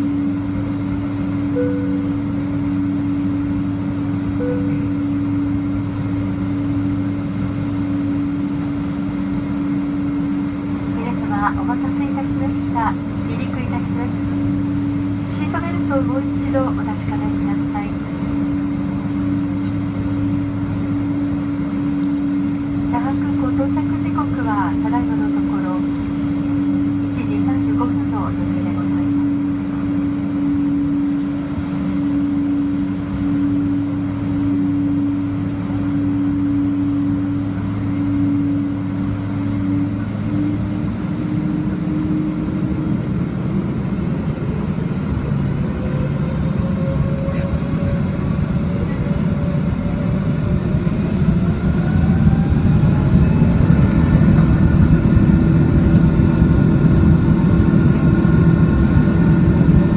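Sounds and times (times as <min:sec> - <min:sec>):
jet engines spooling up: 0:00.0 - 0:59.9.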